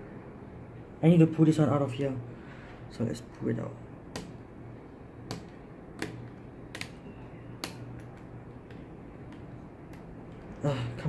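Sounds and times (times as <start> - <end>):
sharp plastic clicks: 5.2 - 10.6.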